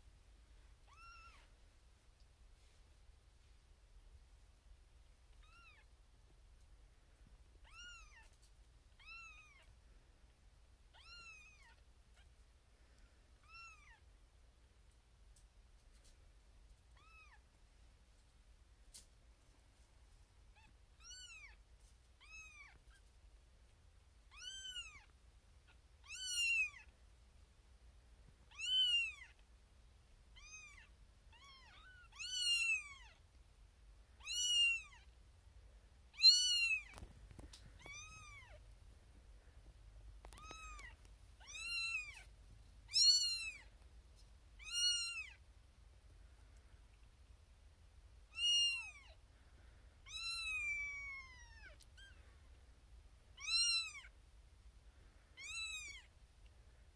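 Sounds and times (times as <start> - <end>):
kitten meowing loudly: 26.0 - 26.8, 28.5 - 29.3, 42.9 - 43.6, 44.6 - 45.4, 48.3 - 49.2, 50.1 - 52.2, 53.4 - 54.1, 55.4 - 56.1.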